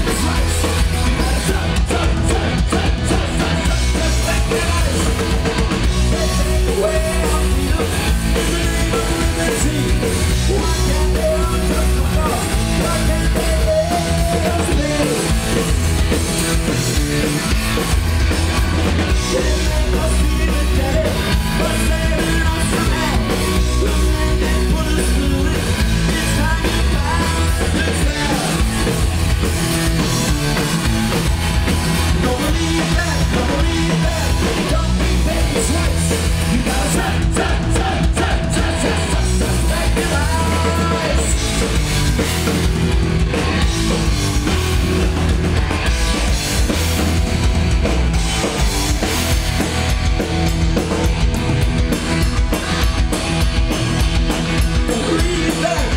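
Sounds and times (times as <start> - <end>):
singer's vocals: 0.0 - 15.6, 19.1 - 28.9, 32.0 - 41.7, 54.7 - 55.9
bass guitar: 0.0 - 55.9
drum kit: 0.0 - 55.9
electric guitars: 0.0 - 55.9.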